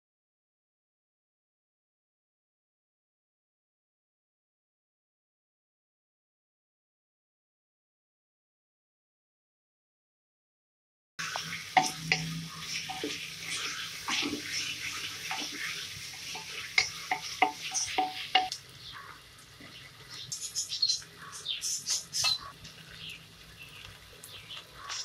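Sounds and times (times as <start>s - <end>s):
vegetables sizzling in a pot: 11.2s - 25.0s
wooden spatula scraping a pot: 11.3s - 18.5s.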